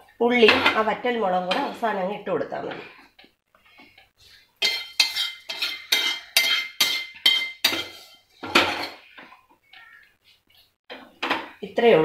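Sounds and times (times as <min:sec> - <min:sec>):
metal spoon clinking on pan: 0:04.6 - 0:09.0.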